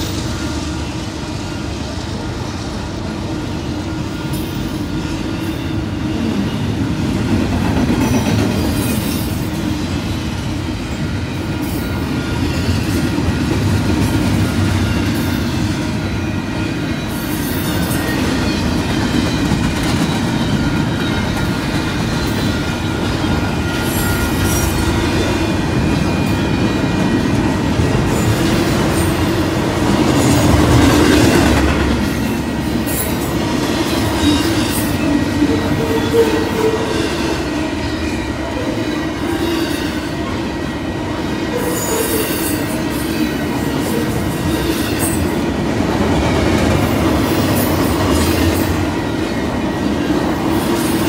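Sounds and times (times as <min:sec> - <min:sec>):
train wheels rumbling on rails: 0:00.0 - 0:51.0
high wheel squeals: 0:14.4 - 0:31.6.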